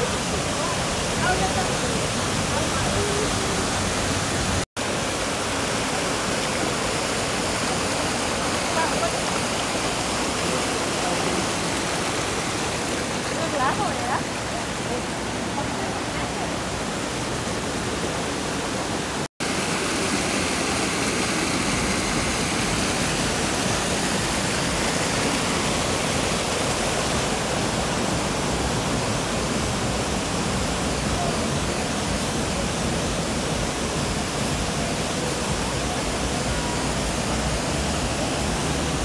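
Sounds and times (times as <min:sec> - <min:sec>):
waterfall rushing: 0:00.0 - 0:39.0.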